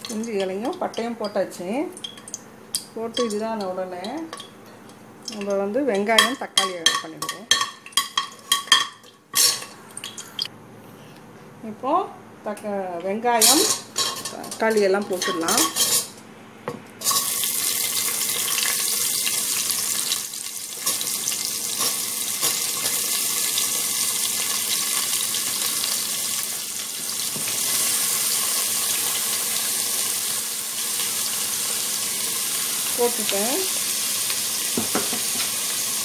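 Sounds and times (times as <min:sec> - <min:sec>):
onions and tomatoes sizzling in oil: 0:17.0 - 0:36.0.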